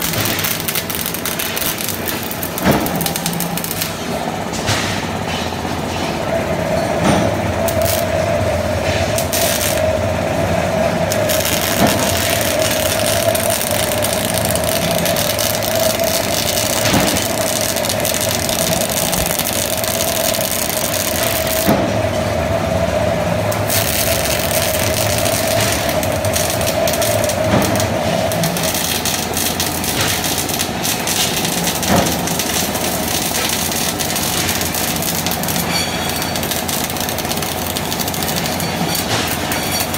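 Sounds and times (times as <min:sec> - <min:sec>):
welding arc hissing: 0:00.0 - 0:04.4, 0:07.5 - 0:21.9, 0:23.0 - 0:39.9
steady hum: 0:00.0 - 0:39.9.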